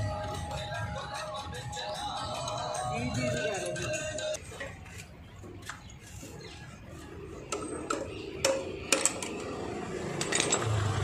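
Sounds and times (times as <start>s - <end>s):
metal tools clinking: 7.5s - 11.0s.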